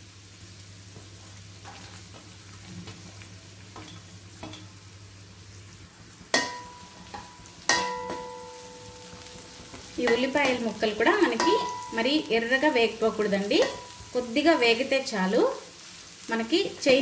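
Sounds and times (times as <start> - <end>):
vegetables sizzling in hot oil: 0.0 - 17.0
metal spatula striking pan: 6.3 - 14.7.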